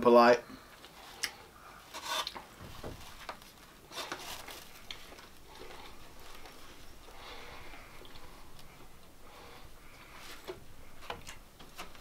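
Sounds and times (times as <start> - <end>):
breathing: 0.4 - 2.0, 5.4 - 11.2
small rustles: 0.7 - 12.0
people chewing: 3.3 - 11.9.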